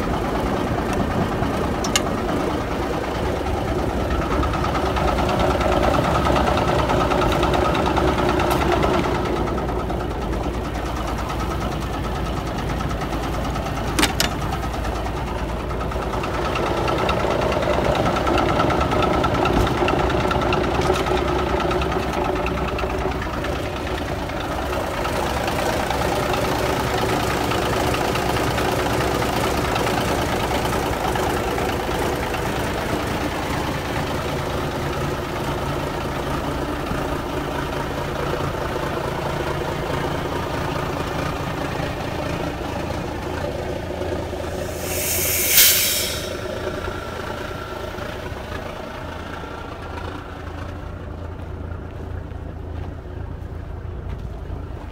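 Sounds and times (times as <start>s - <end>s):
diesel engine idling: 0.0s - 54.9s
air brake hiss: 44.4s - 47.3s.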